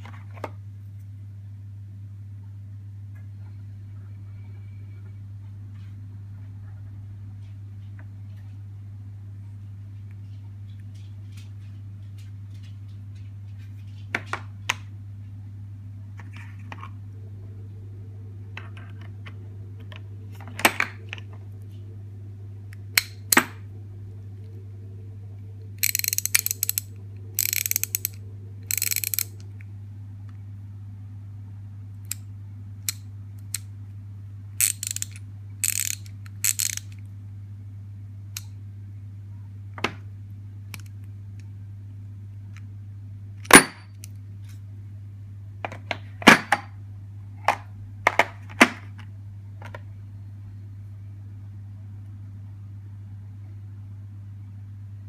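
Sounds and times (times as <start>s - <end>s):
steady low hum: 0.0s - 55.0s
ratchet handles clicking: 25.8s - 29.3s, 34.6s - 36.9s.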